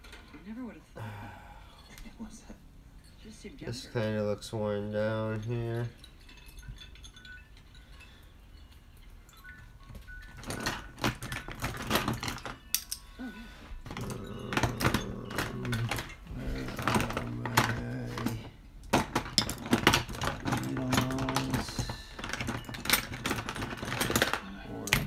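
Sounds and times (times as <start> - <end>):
steady low hum: 0.1 - 9.4
small metal parts clinking: 3.0 - 25.0.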